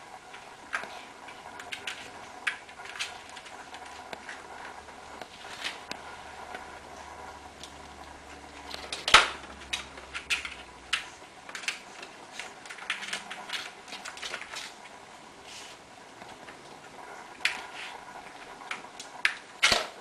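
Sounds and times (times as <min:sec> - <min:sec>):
ball rattling in plastic track: 0:08.7 - 0:14.9.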